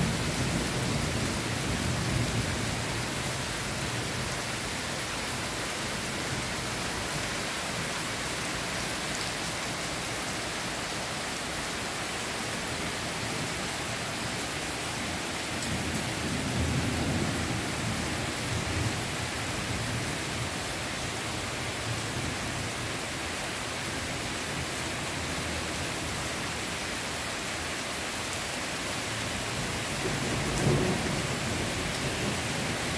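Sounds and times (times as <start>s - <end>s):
heavy rain on foliage: 0.0s - 32.9s.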